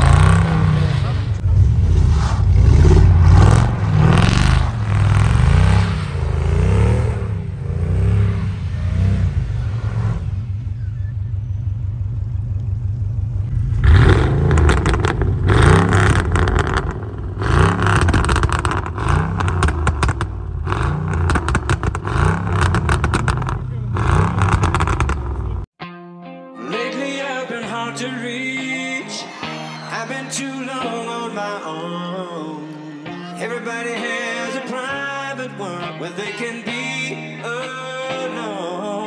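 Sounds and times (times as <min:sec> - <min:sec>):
car engine revving: 0:00.0 - 0:25.7.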